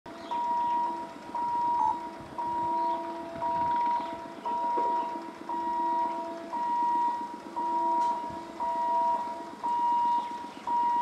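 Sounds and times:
level crossing warning beeps: 0:00.1 - 0:11.0.

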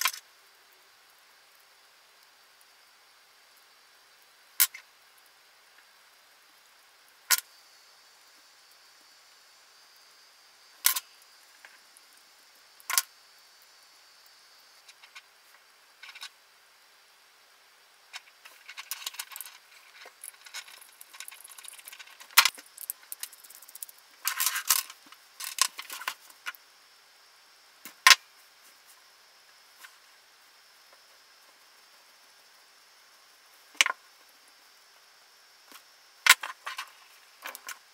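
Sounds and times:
light rattling and scraping: 0:14.8 - 0:16.4, 0:18.1 - 0:26.6
plastic parts clicking: 0:18.6 - 0:26.2.

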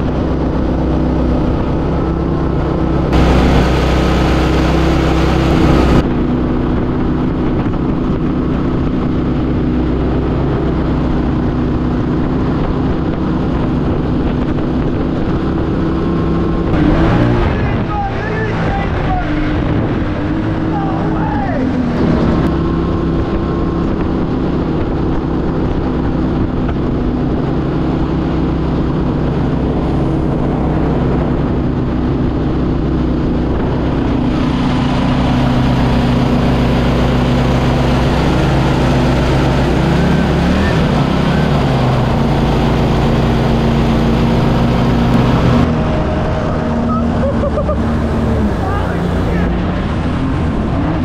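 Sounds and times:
boat engine droning: 0:00.0 - 0:51.0
water rushing: 0:00.0 - 0:51.0
wind rush: 0:00.0 - 0:51.0.

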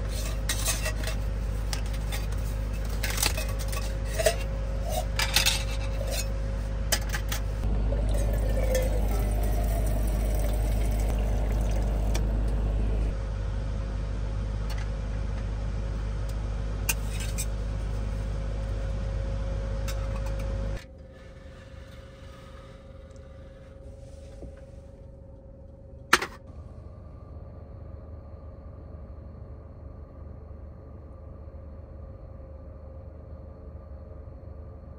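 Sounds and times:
low hum: 0:00.0 - 0:34.9
water dispenser pump humming: 0:07.6 - 0:13.1
water pouring into metal cup: 0:07.7 - 0:12.2.

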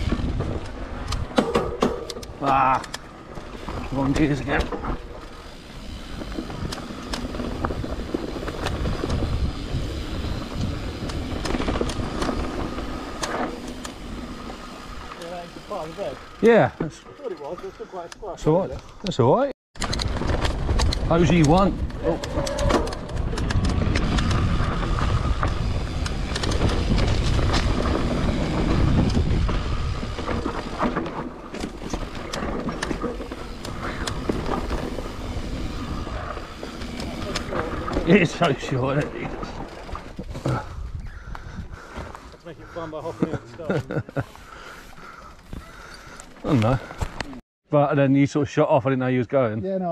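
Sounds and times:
bike rattling over bumps: 0:00.0 - 0:17.9, 0:19.8 - 0:47.4
tyres rumbling on dirt: 0:02.3 - 0:17.0, 0:20.0 - 0:40.8
wind buffeting microphone: 0:05.5 - 0:13.2, 0:20.0 - 0:30.8, 0:40.0 - 0:42.4.

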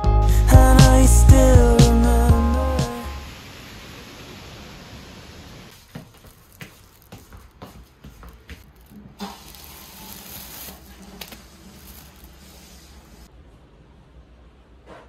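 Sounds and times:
steady rain hiss: 0:01.8 - 0:07.2
plastic bags crinkling: 0:05.7 - 0:07.6, 0:08.6 - 0:13.2.

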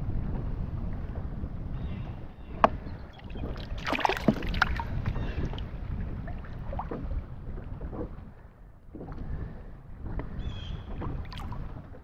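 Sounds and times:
wind rumble on microphone: 0:00.0 - 0:12.0
water splashing: 0:03.1 - 0:12.0.

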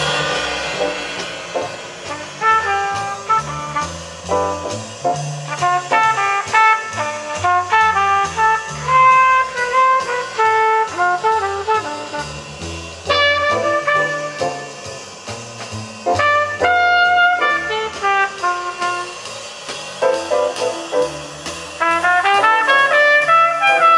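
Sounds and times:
brass-led jazz over speakers: 0:02.1 - 0:14.9, 0:16.0 - 0:19.4, 0:21.8 - 0:23.9.

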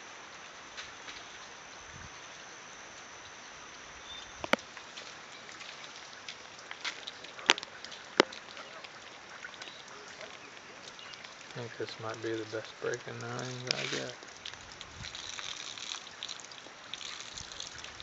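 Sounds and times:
steady rain falling: 0:00.0 - 0:18.0
sharp taps of raindrops: 0:04.2 - 0:18.0.

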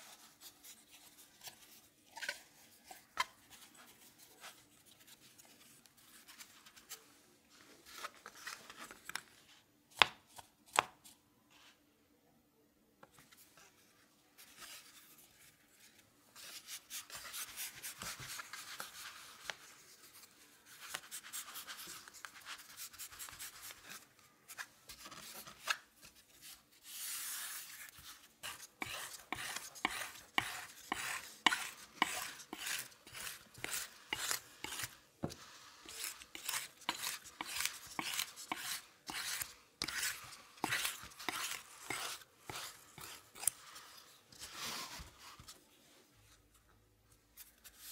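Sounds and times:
knife slicing dough: 0:28.4 - 0:43.6.

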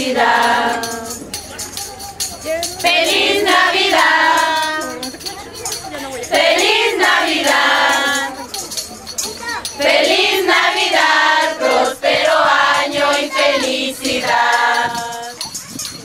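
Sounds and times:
women and girls singing in choir: 0:00.0 - 0:01.4, 0:02.8 - 0:05.2, 0:06.2 - 0:08.4, 0:09.8 - 0:15.4.

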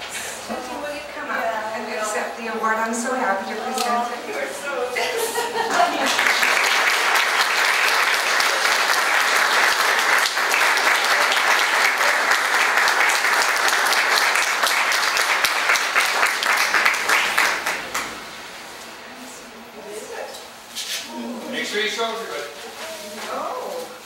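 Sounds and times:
audience applauding: 0:05.7 - 0:18.6.

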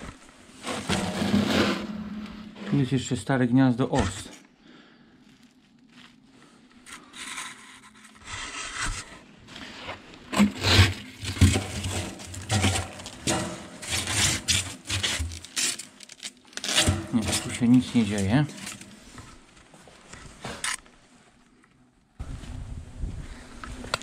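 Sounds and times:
scraping and crinkling of papery nest: 0:05.2 - 0:19.8.

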